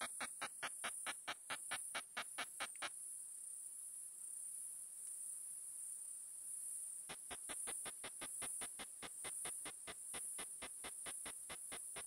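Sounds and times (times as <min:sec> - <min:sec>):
katydid clicks: 0:00.0 - 0:02.9, 0:07.1 - 0:12.0
steady high hiss: 0:07.1 - 0:12.0.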